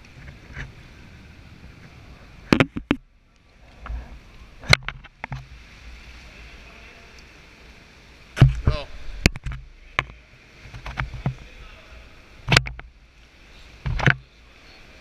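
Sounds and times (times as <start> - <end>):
paddle knocks and splashes: 2.5 - 3.0, 8.4 - 11.6
wash of water: 3.5 - 12.5.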